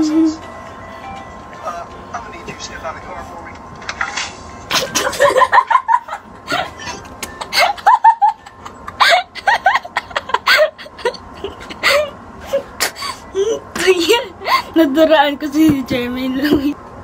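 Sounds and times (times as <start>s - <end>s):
boy giggling: 4.7s - 14.9s.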